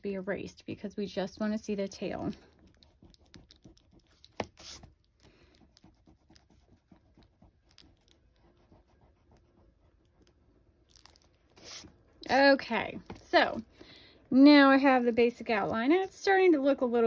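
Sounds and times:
eraser rubbing on paper: 3.9s - 5.0s, 11.6s - 12.6s.

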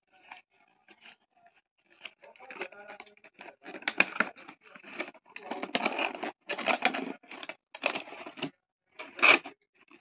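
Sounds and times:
cardboard rustling and scraping: 3.3s - 10.0s.

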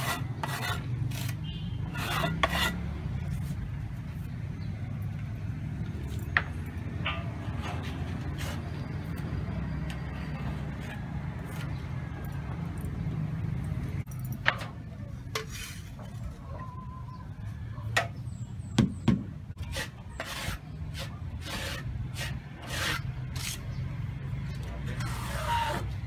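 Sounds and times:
tool scraping concrete blocks: 0.0s - 3.6s, 7.5s - 9.0s, 19.6s - 23.8s, 24.8s - 26.0s
sharp knocks: 18.8s - 19.3s.

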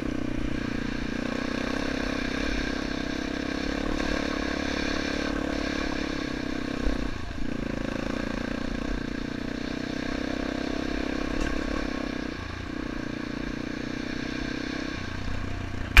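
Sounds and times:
motorcycle engine running: 0.0s - 16.0s.

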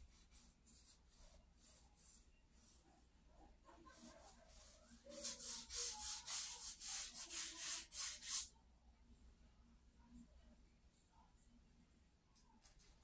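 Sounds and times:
charcoal scratching on paper: 0.0s - 3.0s, 3.9s - 8.5s.

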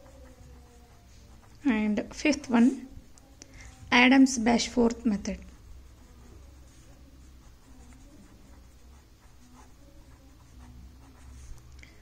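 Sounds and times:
pen scratching on paper: 0.0s - 11.7s.

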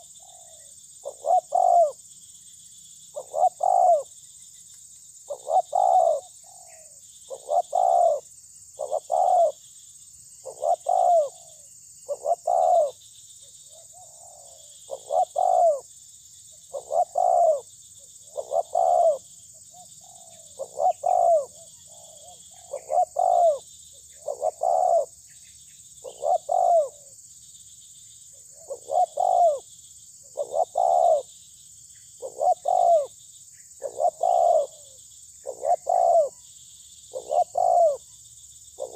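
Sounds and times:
dove cooing: 0.0s - 2.0s, 3.2s - 4.1s, 5.3s - 9.6s, 10.4s - 13.0s, 13.6s - 15.8s, 16.7s - 23.6s, 24.2s - 25.2s, 26.0s - 27.2s, 28.3s - 31.3s, 32.2s - 33.2s, 33.8s - 36.4s, 37.1s - 38.1s.

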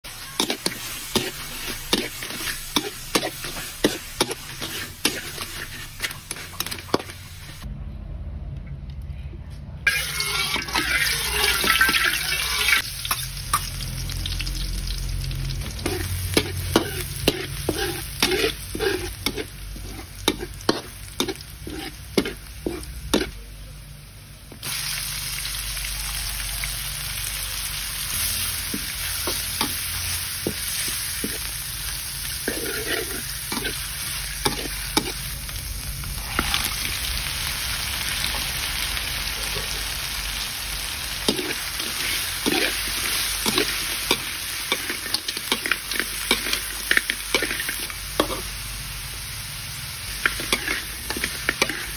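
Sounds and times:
oil sizzling in a wok: 0.0s - 7.7s, 9.9s - 51.9s
metal spatula scraping a wok: 0.2s - 7.6s, 9.9s - 13.7s, 15.6s - 23.4s, 28.1s - 35.4s, 41.2s - 48.5s, 50.1s - 51.9s.

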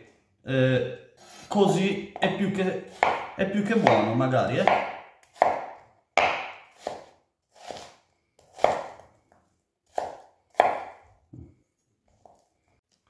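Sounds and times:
knife chopping onion on wooden board: 2.2s - 9.1s, 9.8s - 11.5s.

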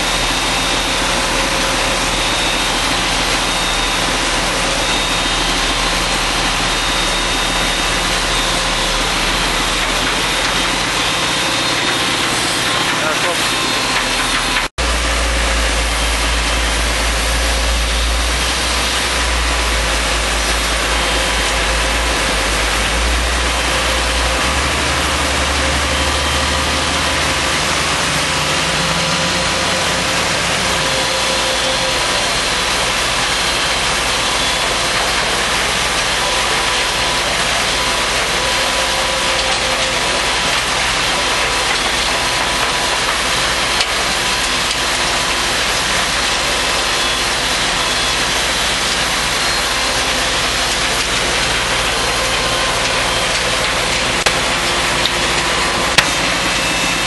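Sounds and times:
diesel engine: 0.0s - 57.0s
soil screener machinery running: 0.0s - 57.0s.

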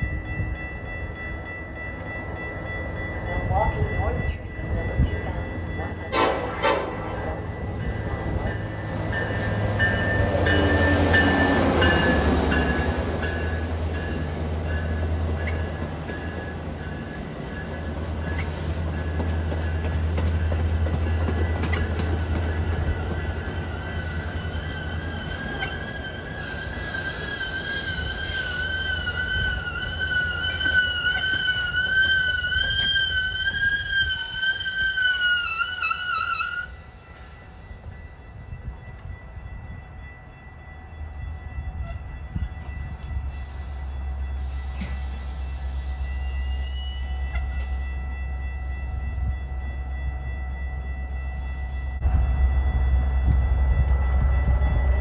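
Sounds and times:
train idling: 0.0s - 55.0s
train rumbling: 0.0s - 55.0s
high-pitched brake squeal: 24.0s - 36.8s, 43.4s - 47.8s.

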